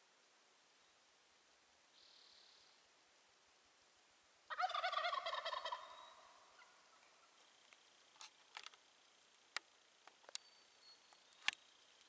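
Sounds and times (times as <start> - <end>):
turkey gobbling: 4.5 - 7.3
faint clicks: 11.1 - 12.0.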